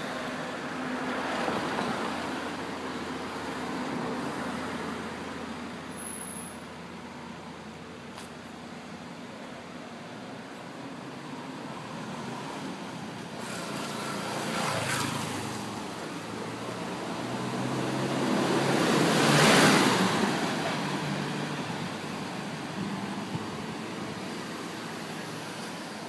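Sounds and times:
cars passing: 0.0 - 26.0
traffic hum: 0.0 - 26.0.

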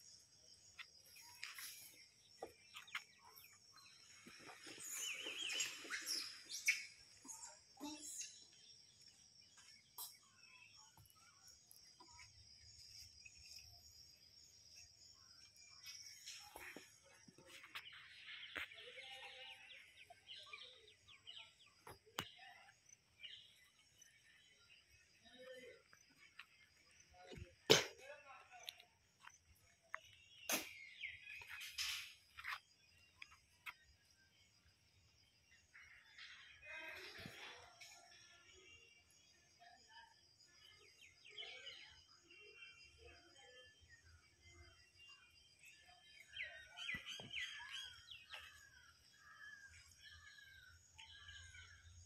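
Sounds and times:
birds chirping and calling: 0.0 - 27.6, 29.2 - 34.4, 44.9 - 52.0.

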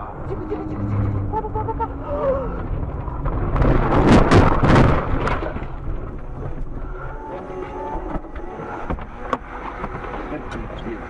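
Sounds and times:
quiet hum: 0.0 - 3.9
car rumbling through snow: 0.0 - 7.0.

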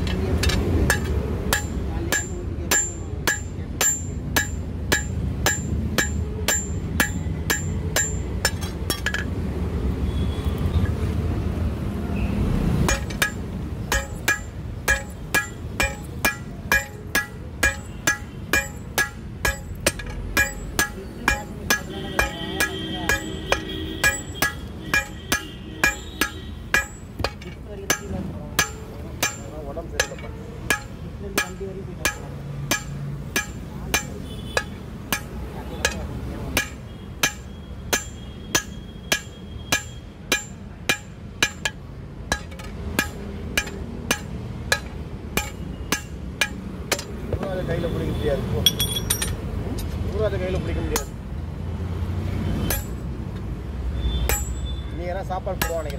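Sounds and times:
hammer striking metal on anvil: 0.0 - 9.4, 12.8 - 47.6, 48.6 - 49.9, 50.9 - 51.2, 52.6 - 53.0, 54.2 - 54.8, 55.5 - 55.9.

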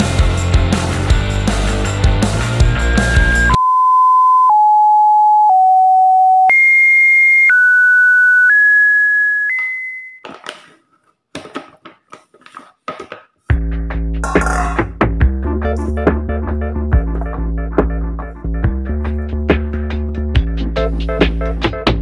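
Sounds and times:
music: 0.0 - 3.6, 13.5 - 22.0
electronic beep tones: 2.9 - 10.2.

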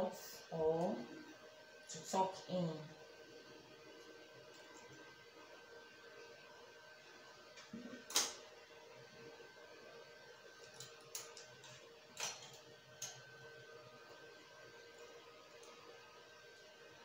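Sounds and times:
faint room hum: 0.0 - 17.0
tool clicking on metal needles: 10.6 - 13.2.

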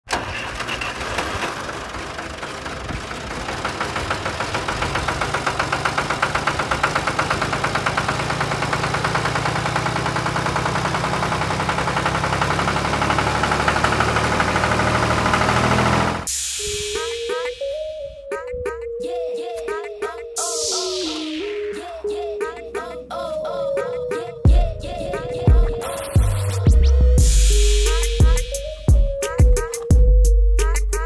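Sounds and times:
tractor engine running: 0.0 - 16.3, 24.5 - 29.0.

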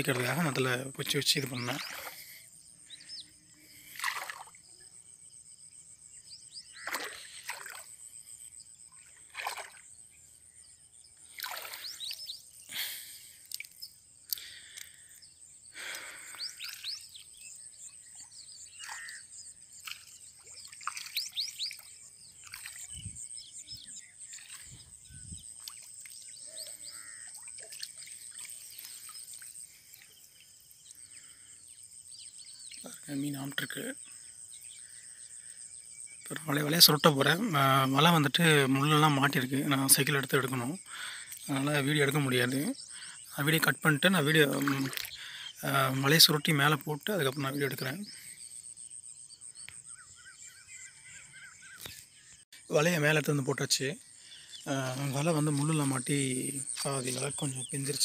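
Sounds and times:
bird chirps: 1.4 - 52.8
water sloshing and splashing: 1.5 - 2.4, 3.8 - 4.6, 6.8 - 8.0, 9.0 - 10.0, 11.2 - 12.2, 18.8 - 23.3, 24.2 - 30.6, 44.5 - 45.2.

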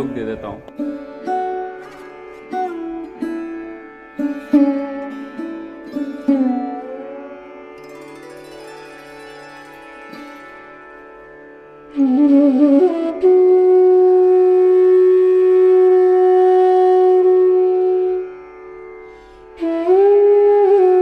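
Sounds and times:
woodwind melody: 11.9 - 21.0.

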